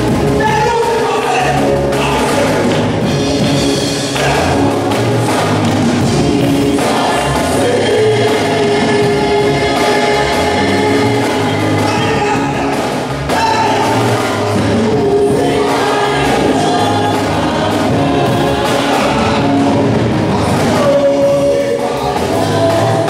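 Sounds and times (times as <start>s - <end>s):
amplified backing music with bass: 0.0s - 23.0s
man singing into microphone: 6.3s - 17.5s, 18.6s - 23.0s.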